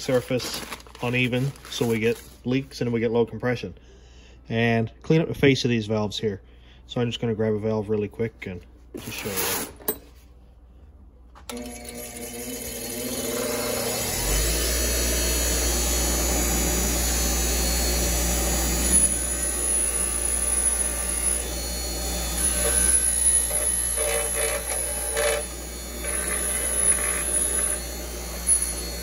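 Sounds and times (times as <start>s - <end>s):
bench grinder motor running: 11.5s - 29.0s
wire wheel scrubbing metal: 21.9s - 29.0s.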